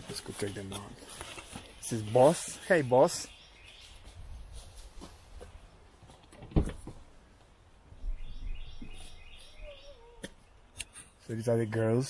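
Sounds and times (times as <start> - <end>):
bird chirping: 1.6 - 4.2, 7.9 - 11.2.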